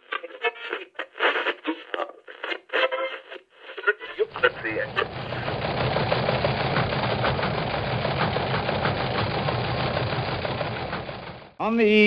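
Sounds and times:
engine drone: 4.3 - 11.6.

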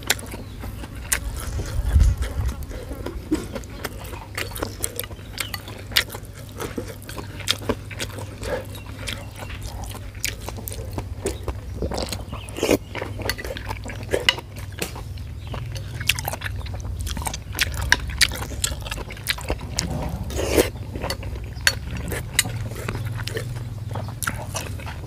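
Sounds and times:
low steady hum: 0.0 - 25.0
man chewing with wet smacks: 0.0 - 25.0.

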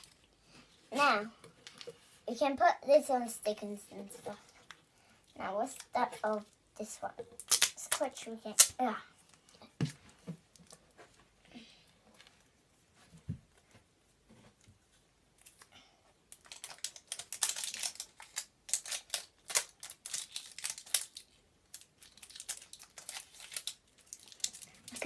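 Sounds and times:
plastic wrapper crinkling and tearing: 7.3 - 8.8, 16.3 - 25.0.

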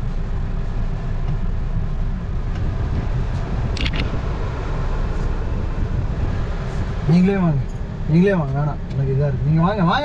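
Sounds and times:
car engine and road rumble: 0.0 - 10.0.

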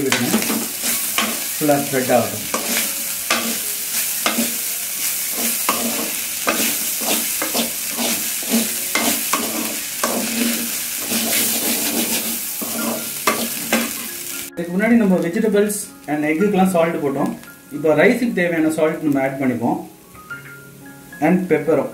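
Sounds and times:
wooden spatula scraping a wok: 0.0 - 14.1
rice sizzling in a wok: 0.0 - 19.5.

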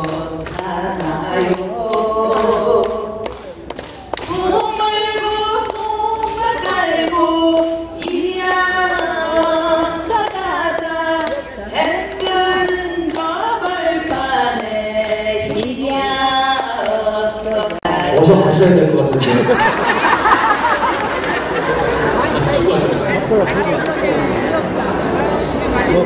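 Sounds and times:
man singing over loudspeakers: 0.0 - 3.6, 17.6 - 19.4.

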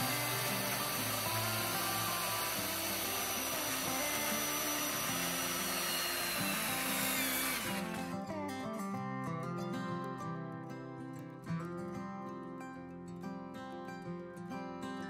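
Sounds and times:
circular saw cutting wood: 0.0 - 8.2
plucked-string music: 0.0 - 15.0.

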